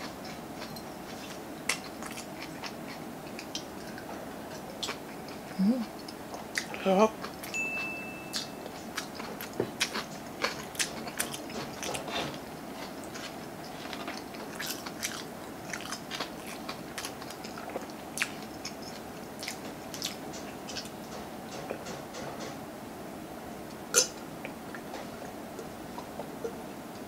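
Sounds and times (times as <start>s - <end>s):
wet chewing and lip smacks: 0.0s - 7.5s, 12.8s - 21.0s.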